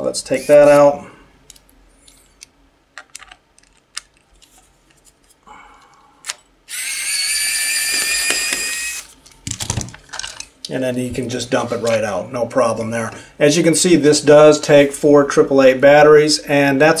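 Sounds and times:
electric screwdriver whining: 0:06.7 - 0:09.1.

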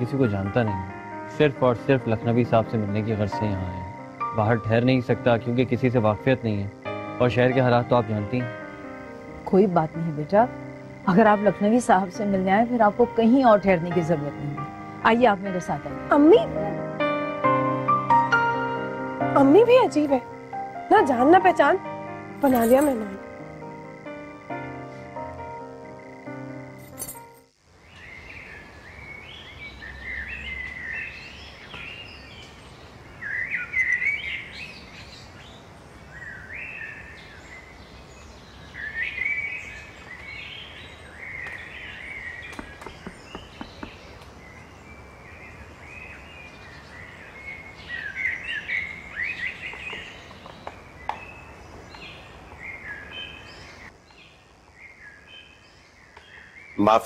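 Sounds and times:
small birds chirping: 0:27.6 - 0:57.0.

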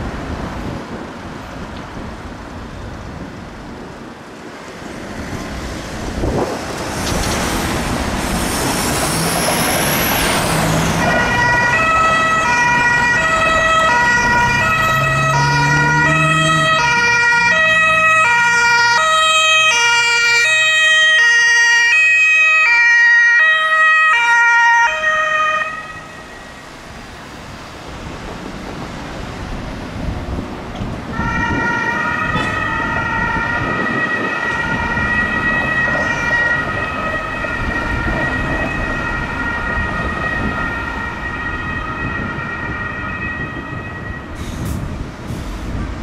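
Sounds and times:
traffic noise: 0:00.0 - 0:46.0
two-tone ambulance siren: 0:08.8 - 0:26.9, 0:31.1 - 0:44.4.

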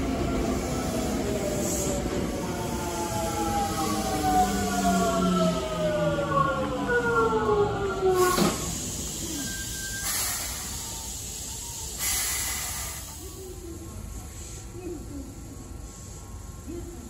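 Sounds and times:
air brake hissing bursts: 0:08.2 - 0:13.4.

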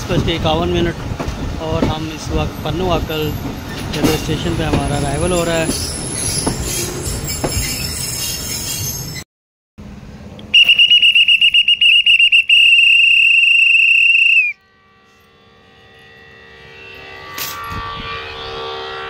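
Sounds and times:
pea whistle blast: 0:10.5 - 0:14.6.

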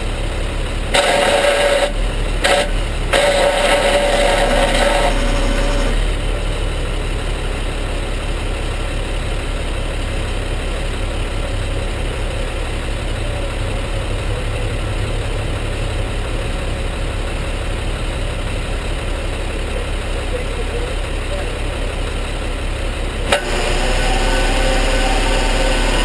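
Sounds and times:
tow truck engine idling: 0:00.0 - 0:26.0
high whine: 0:00.9 - 0:06.2, 0:23.2 - 0:26.0.

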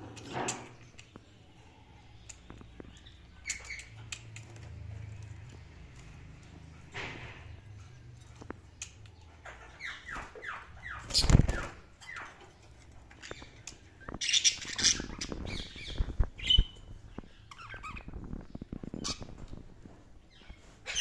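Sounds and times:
budgerigars chirping: 0:02.9 - 0:04.2, 0:09.2 - 0:12.5, 0:13.2 - 0:18.2.

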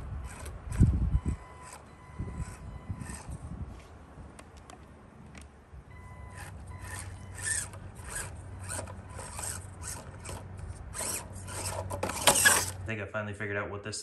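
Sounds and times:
rc truck motor rasping bursts: 0:00.0 - 0:03.6, 0:06.1 - 0:12.9.

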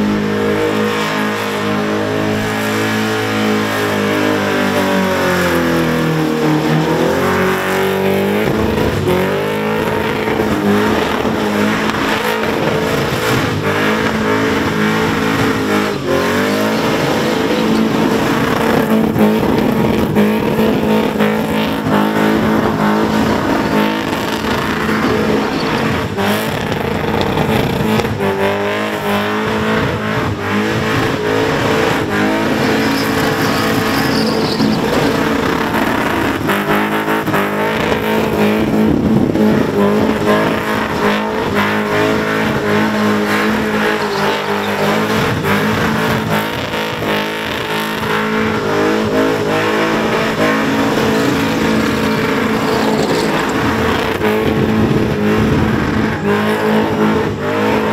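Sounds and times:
car engine at high revs: 0:00.0 - 0:57.9.

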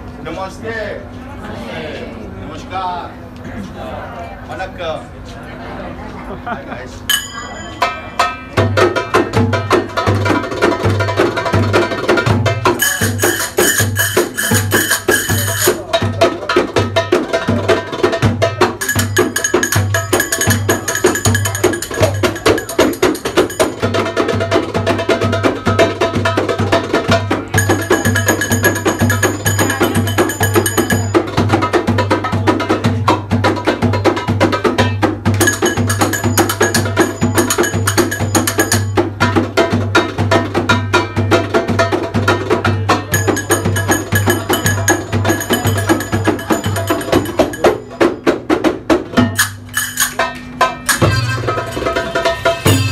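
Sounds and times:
frame drums beating fast rhythm: 0:07.1 - 0:52.9
deep beat: 0:08.2 - 0:52.9
high melody line: 0:12.8 - 0:15.9, 0:18.8 - 0:24.1, 0:27.6 - 0:31.4, 0:35.4 - 0:39.1, 0:43.0 - 0:48.3.

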